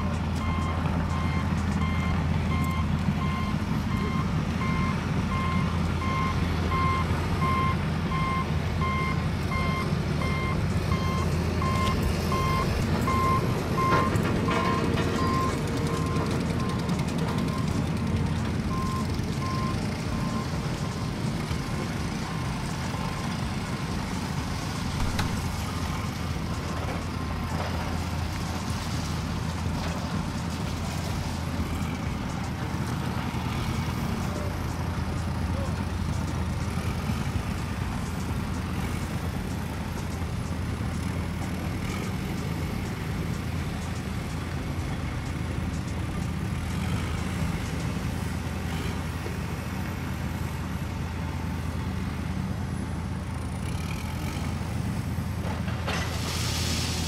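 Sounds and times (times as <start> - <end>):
vehicle reversing alarm beeping: 0.0 - 28.7, 30.2 - 49.4
engine rumble: 0.0 - 57.0.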